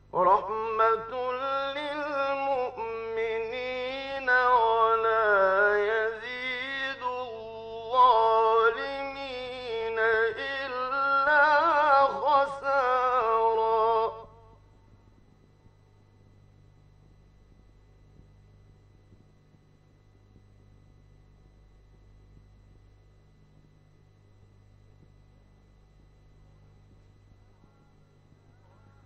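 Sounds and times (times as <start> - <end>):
man chanting melodically: 0.0 - 14.6
faint steady hum: 0.0 - 29.0.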